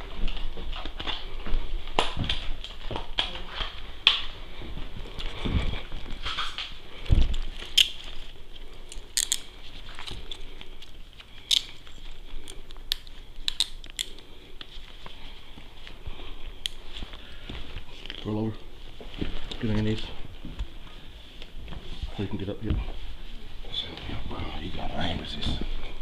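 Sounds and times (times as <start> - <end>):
clothing rustle: 0.0 - 13.5, 14.1 - 26.0
close handling noise: 0.0 - 16.0
handcuffs clicking: 8.8 - 10.6, 11.4 - 14.3.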